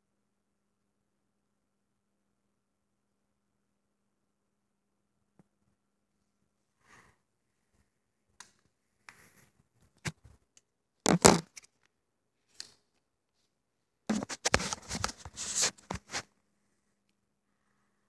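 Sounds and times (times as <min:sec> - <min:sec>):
quick scraping: 0:14.1 - 0:16.3.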